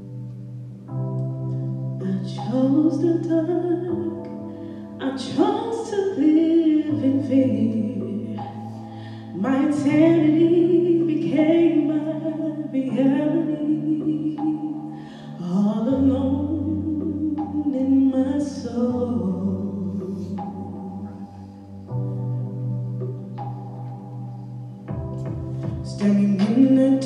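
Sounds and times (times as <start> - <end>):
woman singing with vibrato: 2.0 - 4.4, 5.0 - 21.0, 25.8 - 27.0.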